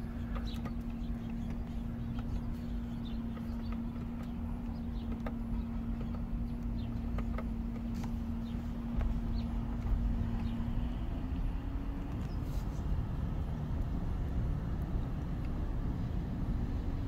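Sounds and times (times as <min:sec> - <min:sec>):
engine hum and rumble: 0:00.0 - 0:17.0.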